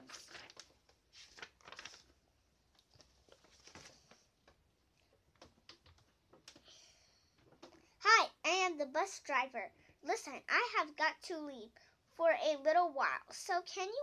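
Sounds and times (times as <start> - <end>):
paper pages rustling: 0.0 - 6.6.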